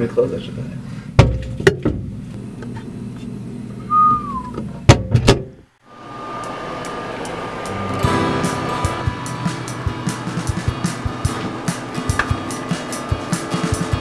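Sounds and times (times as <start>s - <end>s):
microwave humming: 1.2s - 14.0s
short falling tone: 6.0s - 10.3s.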